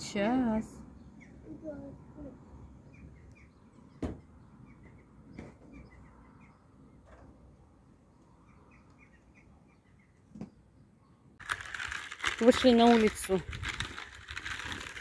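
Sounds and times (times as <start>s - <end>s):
faint birds chirping: 0.4s - 11.4s.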